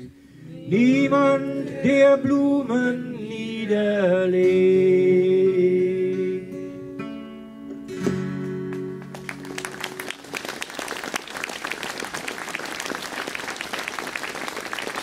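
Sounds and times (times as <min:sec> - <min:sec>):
acoustic guitar chord ringing: 0:02.6 - 0:10.0
audience clapping: 0:08.7 - 0:15.0.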